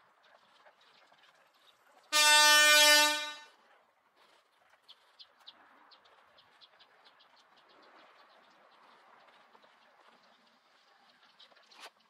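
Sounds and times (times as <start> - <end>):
horn single steady note: 2.1 - 3.5.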